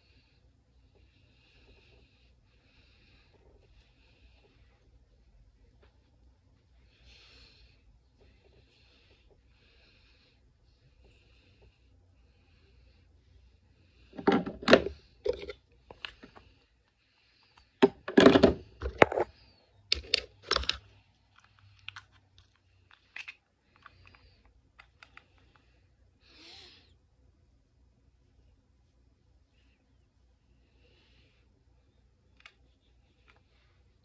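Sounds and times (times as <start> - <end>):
makeup items clicking and clattering: 14.2 - 16.4, 17.8 - 19.3, 19.9 - 20.9.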